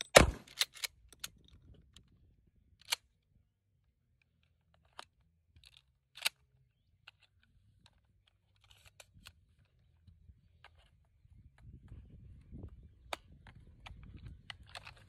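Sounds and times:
shotgun metallic clicks: 0:00.0 - 0:01.5, 0:04.9 - 0:06.4.

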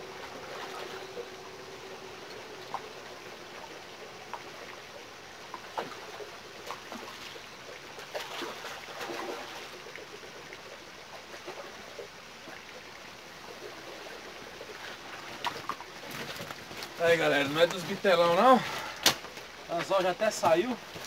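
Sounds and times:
fish splashing in water: 0:00.0 - 0:12.8, 0:13.4 - 0:17.0.

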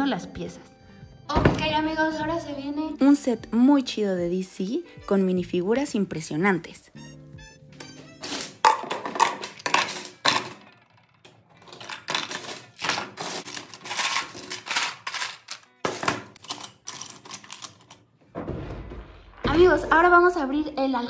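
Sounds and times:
plastic bricks clattering: 0:08.2 - 0:18.0.

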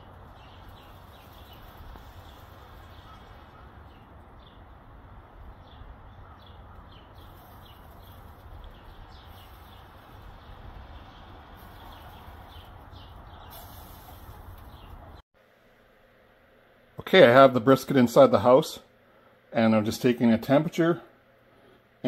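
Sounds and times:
small bird chirping: 0:00.0 - 0:04.7, 0:05.5 - 0:15.2
low outdoor rumble: 0:00.0 - 0:22.0.

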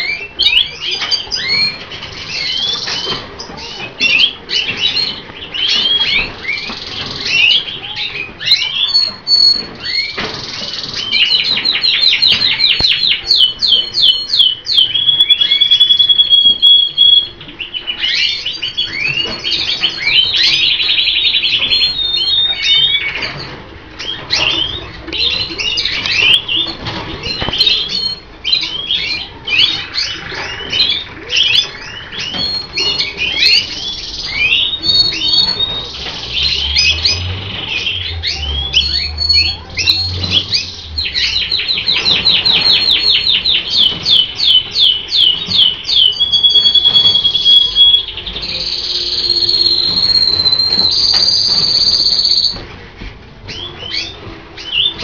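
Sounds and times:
canaries singing: 0:00.0 - 0:55.0.

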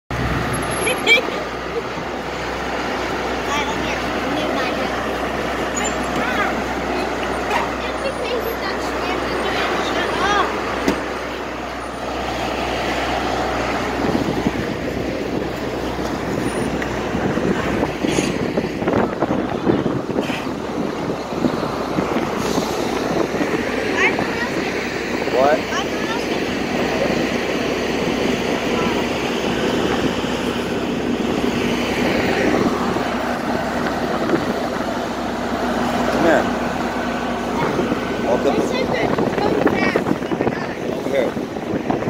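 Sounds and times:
boat engine humming: 0:00.1 - 0:42.0
wind buffeting microphone: 0:01.2 - 0:42.0.

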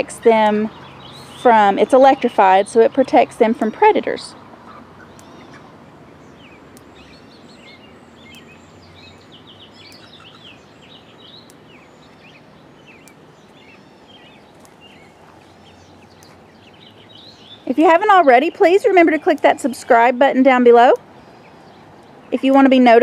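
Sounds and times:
high bird chirps: 0:00.6 - 0:02.9, 0:03.6 - 0:18.8.

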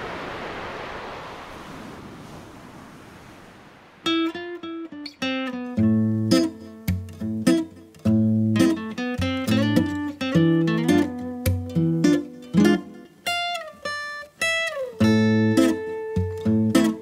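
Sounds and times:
ocean surf: 0:00.0 - 0:07.9
plucked guitar music: 0:04.1 - 0:17.0.

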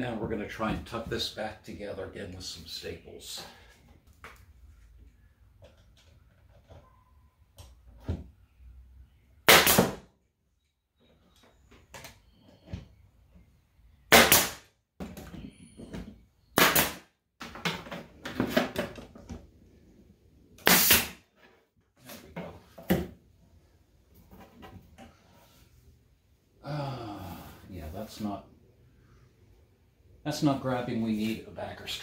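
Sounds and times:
pneumatic stapler shots: 0:09.4 - 0:10.0, 0:14.1 - 0:14.7, 0:16.6 - 0:17.0, 0:20.6 - 0:21.2.

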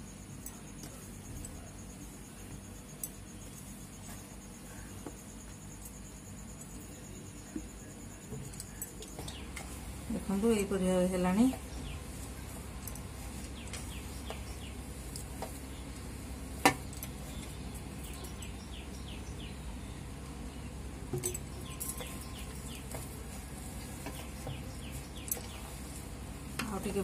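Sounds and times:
low steady hum: 0:00.0 - 0:27.0
bird chirping: 0:13.4 - 0:16.0, 0:16.8 - 0:26.0.

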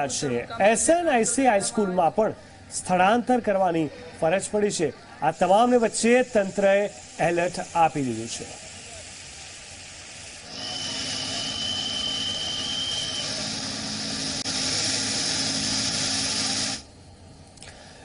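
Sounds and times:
thin high whine: 0:05.0 - 0:17.2
loud even hiss: 0:05.2 - 0:17.0
vehicle engine running: 0:10.7 - 0:16.8.

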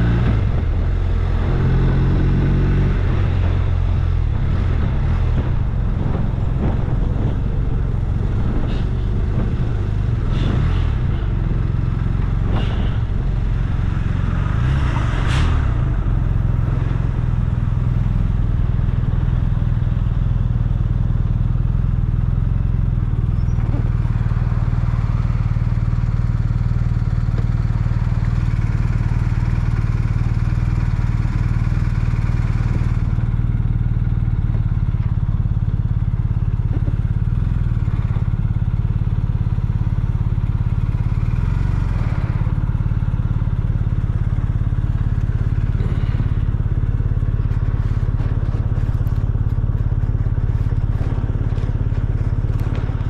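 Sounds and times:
vehicle engine running: 0:00.0 - 0:53.0
knocks and clatter: 0:00.2 - 0:19.7, 0:34.4 - 0:53.0.

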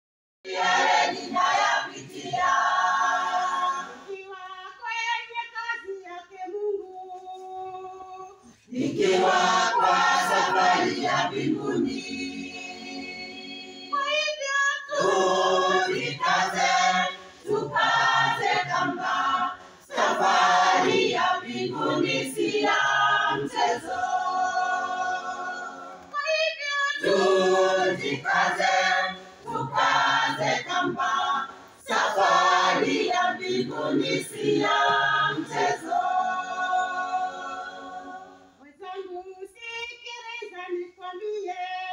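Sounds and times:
choir singing a hymn: 0:00.5 - 0:26.2, 0:26.8 - 0:38.6.

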